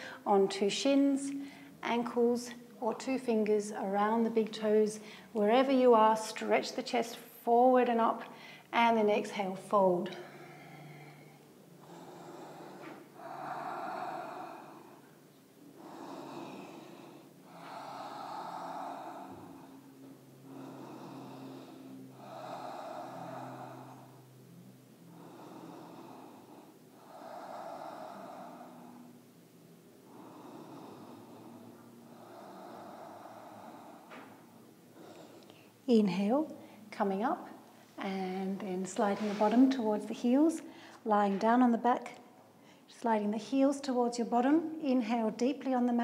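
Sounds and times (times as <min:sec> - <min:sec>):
slow throat breathing: 0:08.2 - 0:08.7, 0:10.0 - 0:35.9.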